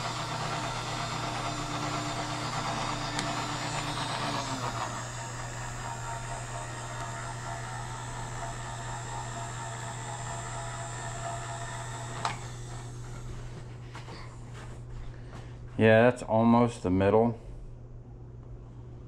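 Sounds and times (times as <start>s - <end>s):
electric motor hum and whine: 0.0s - 15.1s.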